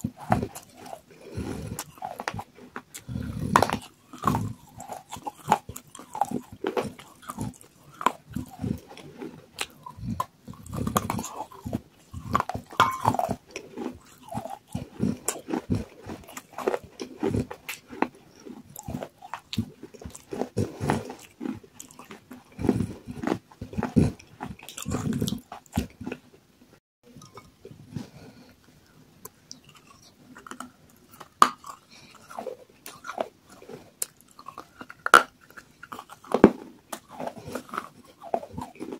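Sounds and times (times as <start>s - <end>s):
crunching and chewing clay: 0.0s - 26.4s, 27.1s - 38.9s.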